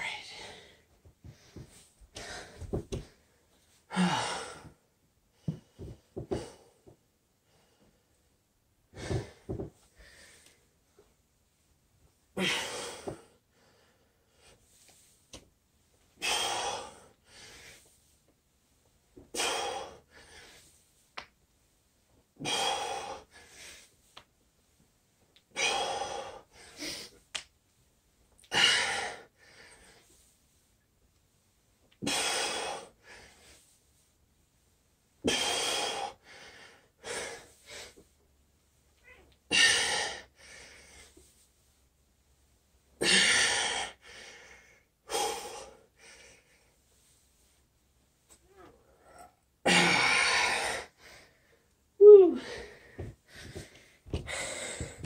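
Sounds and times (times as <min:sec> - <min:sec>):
man breathing hard: 0:00.0 - 0:03.3, 0:03.9 - 0:04.8, 0:08.9 - 0:10.6, 0:12.4 - 0:14.6, 0:16.2 - 0:17.9, 0:19.3 - 0:20.7, 0:22.4 - 0:23.9, 0:35.3 - 0:38.0, 0:43.0 - 0:46.8, 0:48.9 - 0:51.7, 0:52.3 - 0:55.0.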